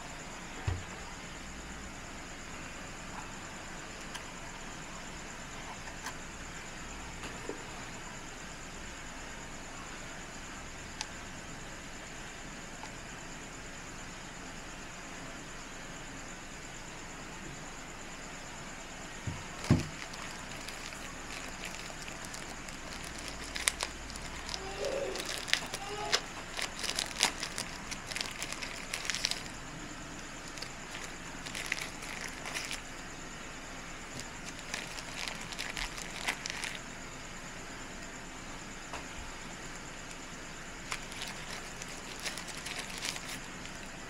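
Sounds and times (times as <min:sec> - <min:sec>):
packaging wrappers crinkling: 0:19.4 - 0:33.0, 0:34.1 - 0:36.8, 0:40.8 - 0:43.8.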